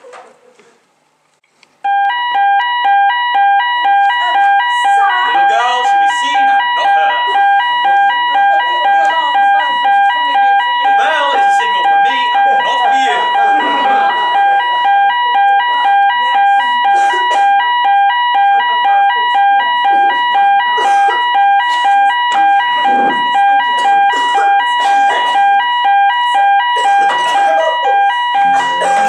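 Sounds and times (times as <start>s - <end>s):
two-tone electronic alarm beeping: 1.8s - 29.0s
murmur of audience: 4.2s - 25.7s.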